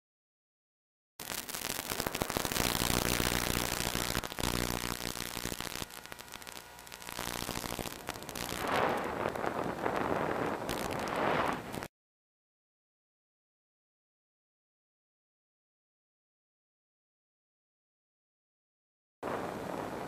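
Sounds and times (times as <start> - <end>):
electric motor and propeller: 1.2 - 11.9
radio static hiss: 1.2 - 11.9
rush of noise: 1.2 - 11.9.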